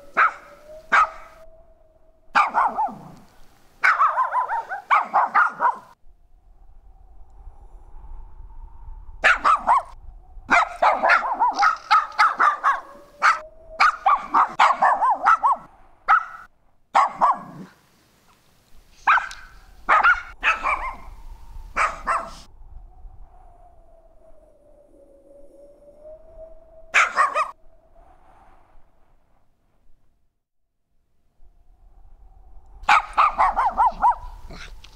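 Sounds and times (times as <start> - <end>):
small dog barking: 0.1 - 1.4, 2.3 - 3.2, 3.8 - 6.0, 9.2 - 17.8, 19.0 - 21.1, 21.8 - 22.5, 27.0 - 27.6, 32.8 - 34.7.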